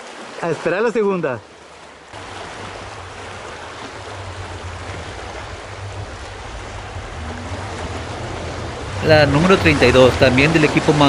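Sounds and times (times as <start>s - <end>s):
truck engine drone: 2.2s - 11.0s.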